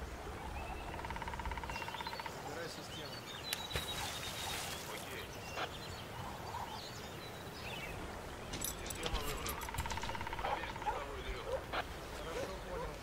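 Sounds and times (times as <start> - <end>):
birds chirping: 0.0 - 13.0
sharp clicks: 8.5 - 10.9.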